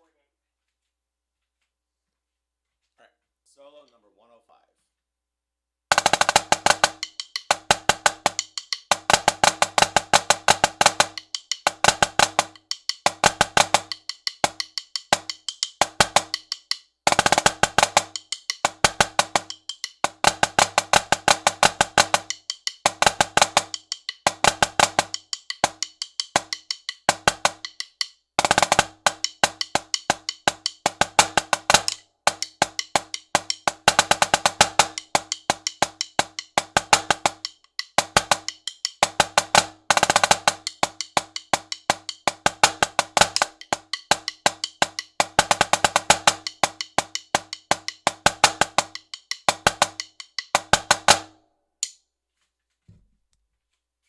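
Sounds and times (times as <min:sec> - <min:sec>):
snare drum playing: 0:05.9 - 0:51.4.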